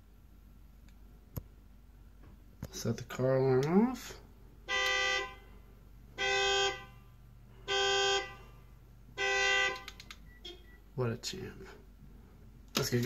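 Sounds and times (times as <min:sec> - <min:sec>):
car horn honks: 0:04.7 - 0:05.5, 0:06.1 - 0:10.7.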